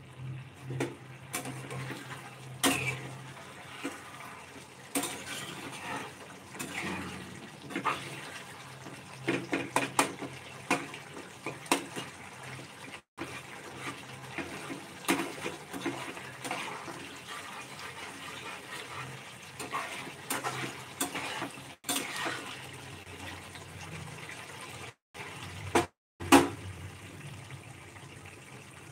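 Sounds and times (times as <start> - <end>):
thick gravy bubbling in a pan: 0.0 - 28.9
spatula scraping a pan: 0.6 - 12.2, 13.2 - 22.8.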